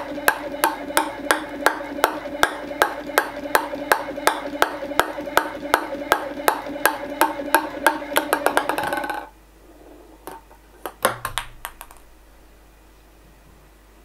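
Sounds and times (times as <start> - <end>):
ping pong ball bouncing on plywood: 0.0 - 9.3, 10.2 - 12.1
faint steady hum: 0.0 - 14.0.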